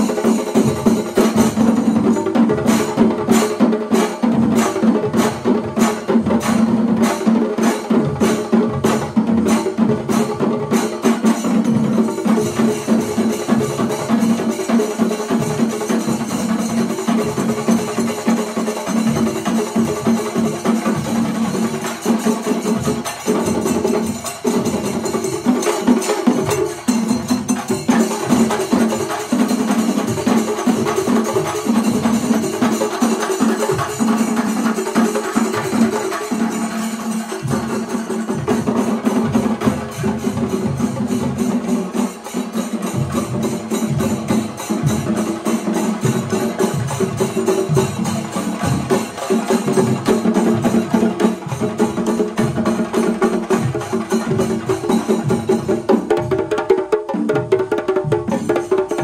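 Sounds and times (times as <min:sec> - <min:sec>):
drums played rapidly with sticks: 0:00.0 - 0:59.0.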